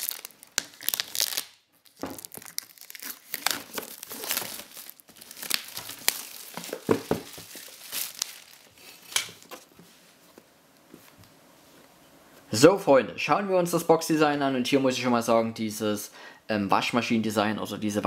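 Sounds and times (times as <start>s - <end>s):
plastic film tearing and crinkling: 0.0s - 9.7s.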